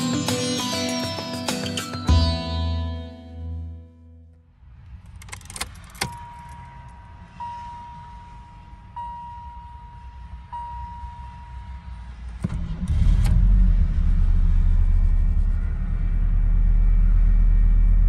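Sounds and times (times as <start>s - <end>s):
car engine idling: 4.4s - 18.0s
dashboard warning tone: 6.0s - 12.2s.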